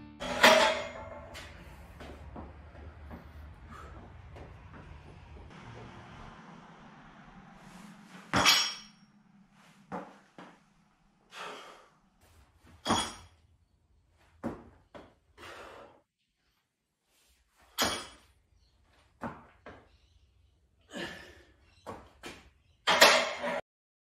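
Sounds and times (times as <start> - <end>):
hard breathing: 1.3 - 4.9, 11.2 - 12.5, 15.3 - 16.1
feet thudding on rubber flooring: 1.6 - 6.0, 14.2 - 15.2.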